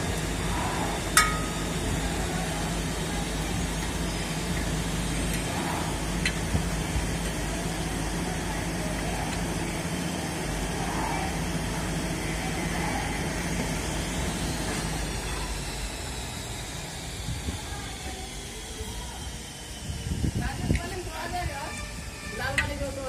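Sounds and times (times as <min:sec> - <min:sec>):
background hum: 0:00.0 - 0:16.4.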